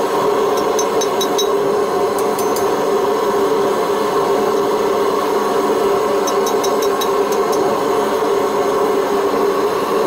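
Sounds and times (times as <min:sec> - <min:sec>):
light metallic clinks: 0:06.3 - 0:07.6.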